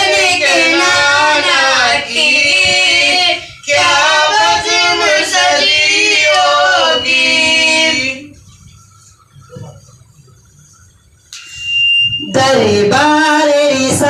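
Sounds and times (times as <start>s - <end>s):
boy singing into a microphone: 0.0s - 8.2s, 12.2s - 14.0s.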